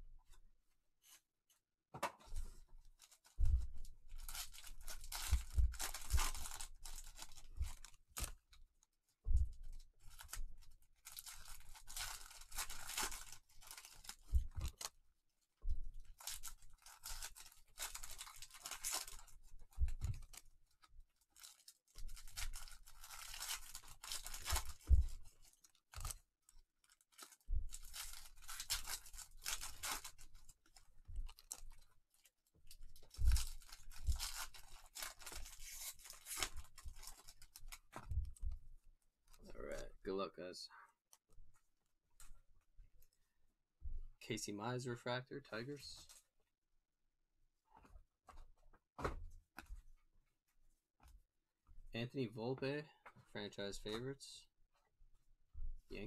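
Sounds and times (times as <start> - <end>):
foil wrappers tearing and crinkling: 4.2 - 8.4, 11.0 - 14.9, 16.2 - 19.3, 21.4 - 26.2, 26.8 - 31.8, 32.9 - 38.0.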